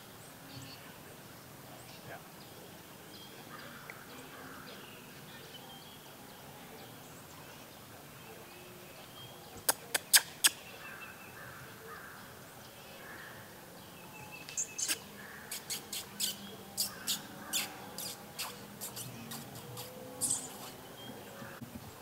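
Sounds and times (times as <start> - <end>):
faint calls: 14.4 - 21.6.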